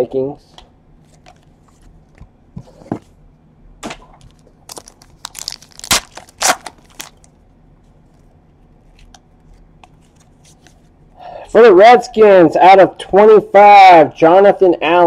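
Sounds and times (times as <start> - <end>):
foil wrapper tearing and crinkling: 4.7 - 7.3.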